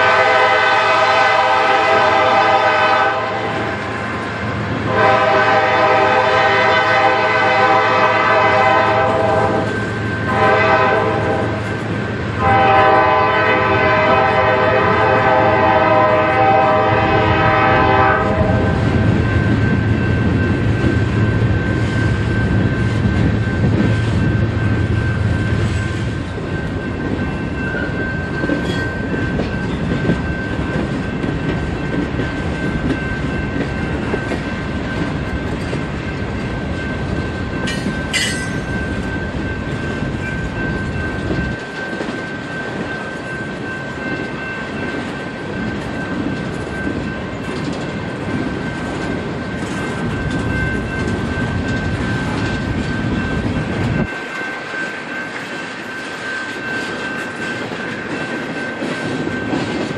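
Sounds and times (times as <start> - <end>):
freight train horn blasts: 0.0 - 3.9, 4.8 - 19.1
train cars rolling on rails: 0.0 - 59.9.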